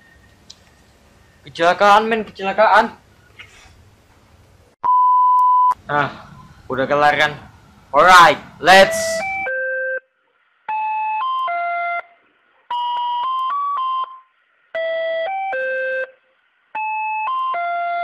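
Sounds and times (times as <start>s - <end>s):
electronic beeping tune: 9.1s - 10.0s, 14.8s - 16.2s.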